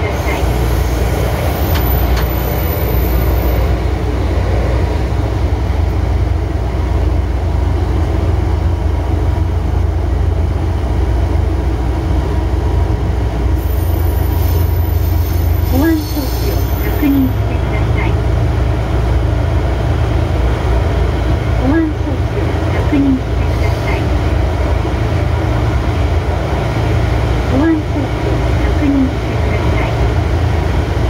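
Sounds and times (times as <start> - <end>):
wheel and rail noise: 0.0 - 6.3
locomotive engine low rumble: 0.0 - 31.0.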